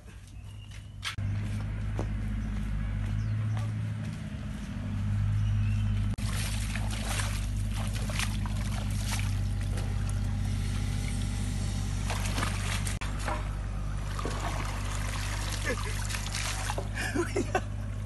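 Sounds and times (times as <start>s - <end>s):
low steady hum: 1.2s - 18.0s
water splashing and sloshing: 6.1s - 18.0s.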